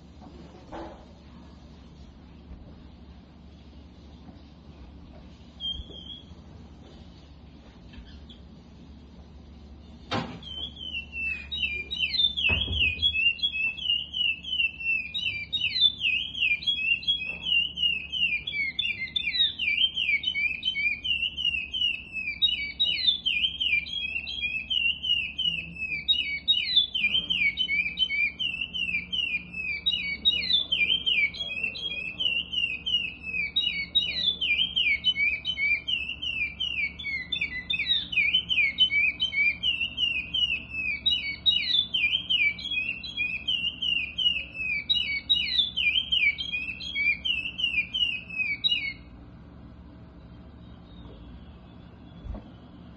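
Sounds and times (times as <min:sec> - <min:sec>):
finch singing whistled phrases: 0:05.6 - 0:06.4, 0:10.4 - 0:49.1.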